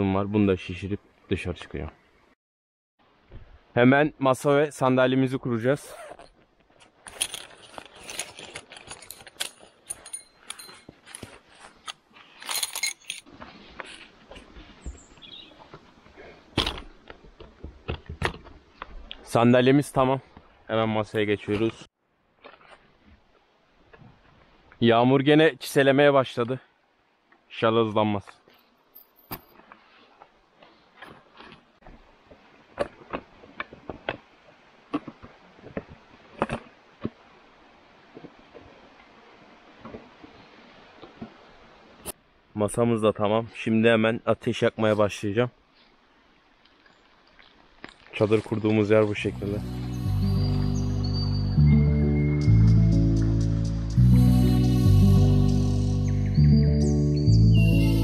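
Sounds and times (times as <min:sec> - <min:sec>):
metal chair frame clicking and rattling: 0:07.1 - 0:11.2.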